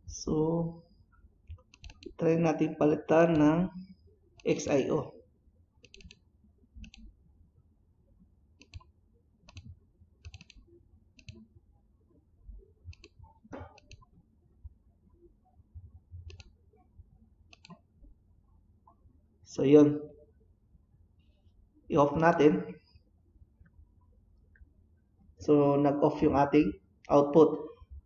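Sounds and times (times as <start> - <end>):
mouse and keyboard clicks: 1.5 - 2.2, 5.8 - 6.2, 6.8 - 7.1, 8.6 - 8.9, 9.5 - 10.6, 11.2 - 11.5, 12.9 - 14.1, 16.2 - 16.6, 17.5 - 17.8.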